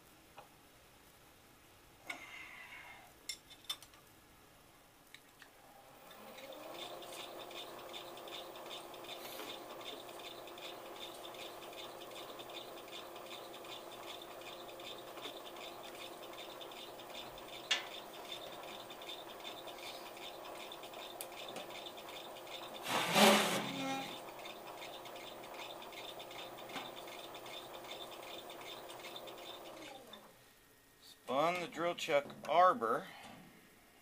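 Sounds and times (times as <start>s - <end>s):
milling machine hum: 5.7s - 30.3s
hole saw scratchy rasp: 21.4s - 29.5s.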